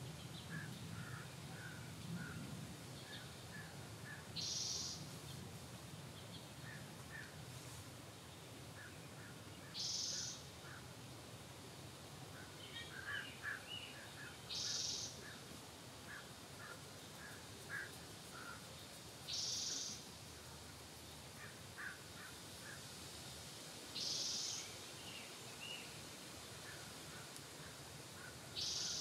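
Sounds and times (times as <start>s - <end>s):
small birds chirping: 3.0s - 7.4s, 8.3s - 10.5s, 12.4s - 15.5s, 16.1s - 22.8s, 24.0s - 26.0s, 28.2s - 29.0s.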